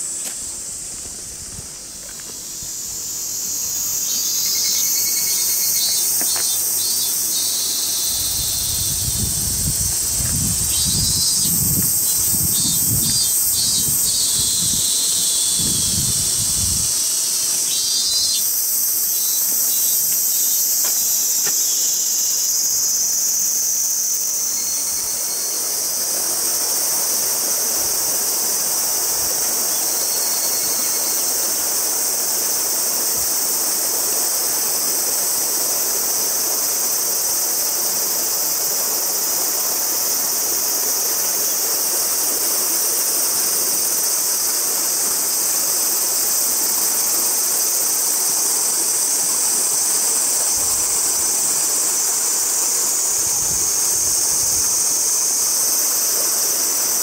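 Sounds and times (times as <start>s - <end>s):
insect pulsed chirps: 0.0s - 57.0s
insects chorus: 0.0s - 57.0s
stream rushing: 23.8s - 57.0s.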